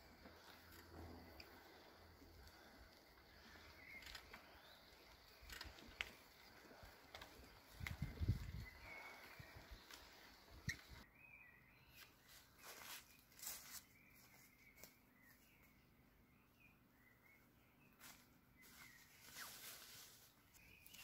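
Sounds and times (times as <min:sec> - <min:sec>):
birds chirping in the distance: 0:00.0 - 0:21.0
rustling in dry leaves: 0:12.1 - 0:15.0, 0:18.0 - 0:21.0.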